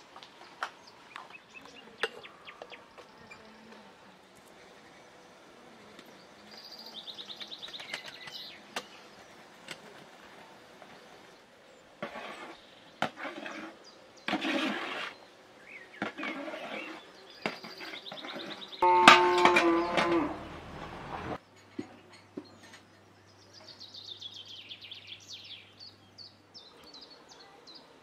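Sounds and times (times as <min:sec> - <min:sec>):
metal scraping and clatter: 0:17.6 - 0:21.4
pot lid clattering: 0:18.8 - 0:20.4
metal teapots clinking: 0:18.8 - 0:20.6.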